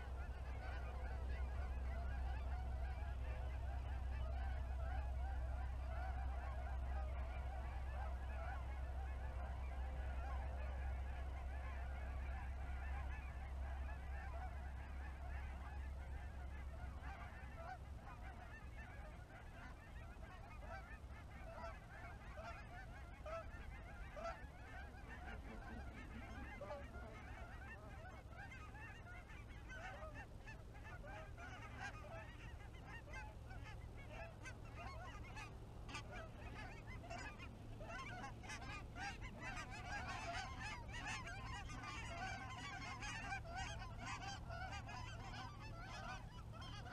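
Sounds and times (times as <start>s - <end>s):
geese honking: 0.0s - 46.9s.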